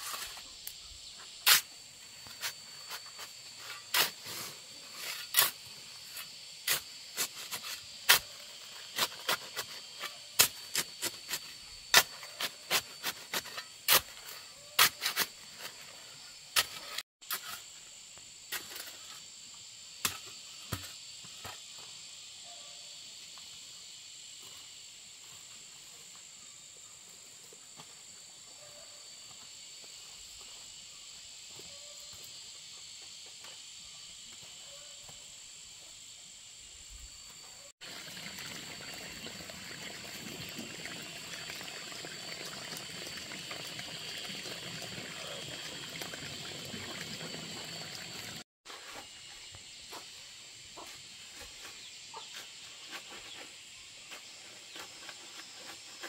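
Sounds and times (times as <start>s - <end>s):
insects droning: 0.0s - 56.0s
running water splashing: 37.8s - 48.4s.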